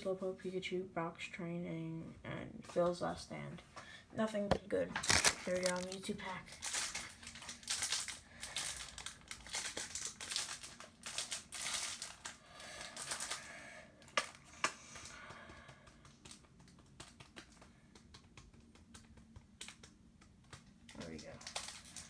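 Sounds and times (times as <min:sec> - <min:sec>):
foil wrapper crinkling: 0:04.9 - 0:14.4, 0:20.6 - 0:22.0
cards ticking as flicked through: 0:14.9 - 0:21.4.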